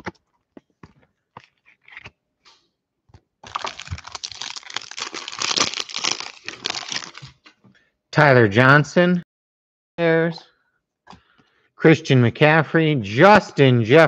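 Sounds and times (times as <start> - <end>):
foil wrapper tearing and crinkling: 3.4 - 7.4.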